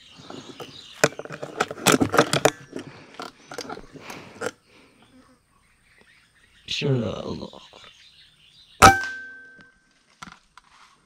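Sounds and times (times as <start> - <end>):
close rustling: 0.0 - 4.6.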